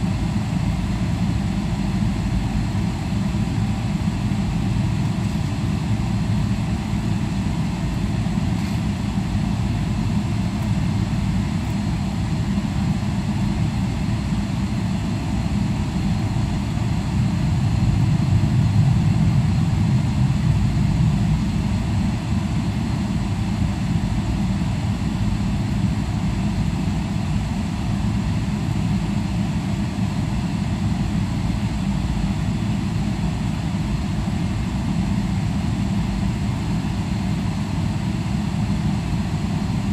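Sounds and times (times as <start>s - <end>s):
airplane cabin engine rumble: 0.0s - 39.9s.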